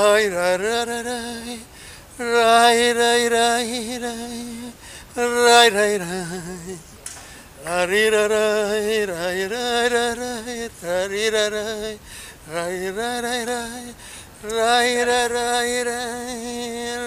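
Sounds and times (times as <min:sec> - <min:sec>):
man singing unaccompanied: 0:00.0 - 0:17.0
breaths: 0:01.6 - 0:02.2, 0:04.8 - 0:05.2, 0:07.1 - 0:07.6, 0:12.0 - 0:12.5, 0:13.9 - 0:14.4.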